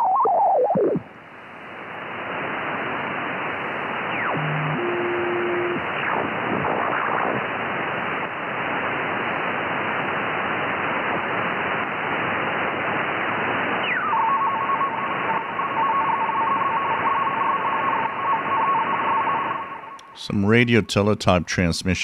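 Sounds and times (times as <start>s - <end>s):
warbling two-tone teletype signal: 0.0s - 1.0s, 4.0s - 7.5s, 13.8s - 20.0s
radio static hiss: 0.0s - 22.0s.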